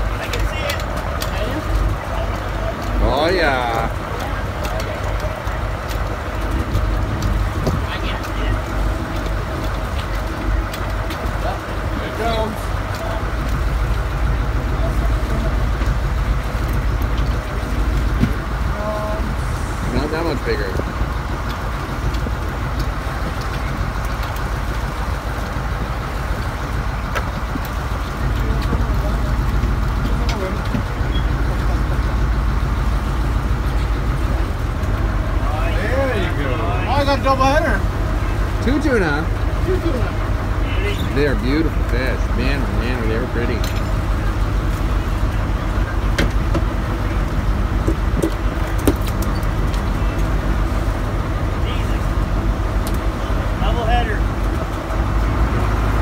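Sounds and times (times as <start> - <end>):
boat engine rumble: 0.0 - 56.0
water rushing along hull: 0.0 - 56.0
wind: 0.0 - 56.0.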